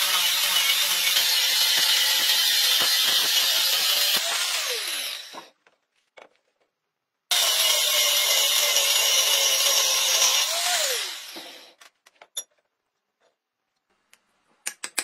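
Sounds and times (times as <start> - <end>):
angle grinder cutting steel: 0.0 - 5.5, 7.3 - 11.8.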